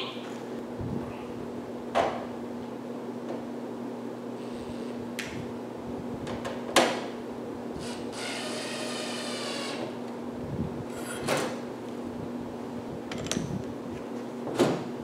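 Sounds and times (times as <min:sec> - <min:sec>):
cordless drill running: 0:07.8 - 0:09.9.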